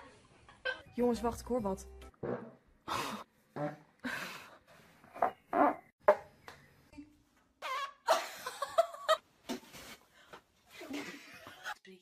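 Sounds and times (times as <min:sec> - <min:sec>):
person farting: 0:03.6 - 0:03.9, 0:05.5 - 0:06.2
laughter: 0:08.1 - 0:09.2, 0:10.8 - 0:11.8.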